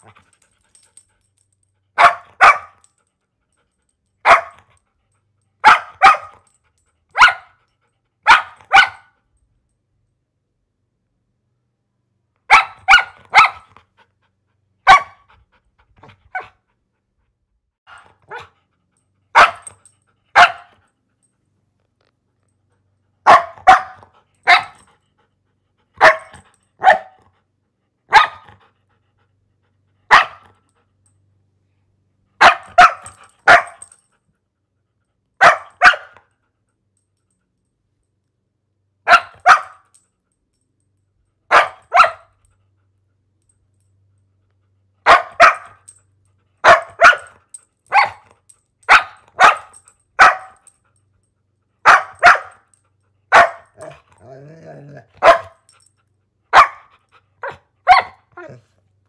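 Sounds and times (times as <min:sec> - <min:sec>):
dog barking: 0:02.0 - 0:02.8, 0:04.2 - 0:04.7, 0:05.6 - 0:06.4, 0:07.1 - 0:07.6, 0:08.2 - 0:09.2, 0:12.5 - 0:13.7, 0:14.8 - 0:15.3, 0:17.9 - 0:18.5, 0:19.3 - 0:19.8, 0:20.4 - 0:20.7, 0:23.2 - 0:24.8, 0:26.0 - 0:27.2, 0:28.1 - 0:28.5, 0:30.1 - 0:30.5, 0:32.4 - 0:33.8, 0:35.4 - 0:36.2, 0:39.0 - 0:39.8, 0:41.5 - 0:42.3, 0:45.0 - 0:45.8, 0:46.6 - 0:48.3, 0:48.9 - 0:50.6, 0:51.8 - 0:52.7, 0:53.3 - 0:54.0, 0:55.0 - 0:55.7, 0:56.5 - 0:58.6.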